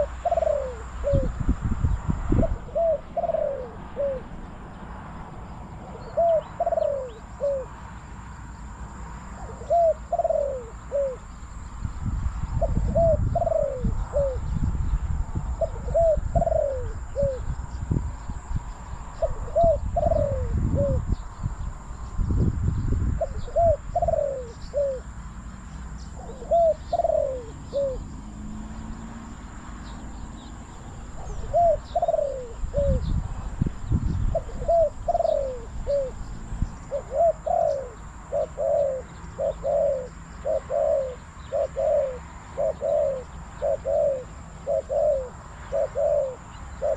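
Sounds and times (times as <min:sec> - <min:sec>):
dove cooing: 0:00.0 - 0:01.4, 0:02.3 - 0:04.5, 0:05.8 - 0:07.8, 0:09.3 - 0:11.4, 0:12.5 - 0:14.6, 0:15.4 - 0:17.5, 0:19.2 - 0:21.2, 0:23.2 - 0:25.2, 0:26.1 - 0:28.3, 0:31.0 - 0:33.2, 0:34.3 - 0:46.9
wind rumbling on microphone: 0:00.0 - 0:07.8, 0:08.8 - 0:46.9
small birds chirping: 0:00.0 - 0:46.9.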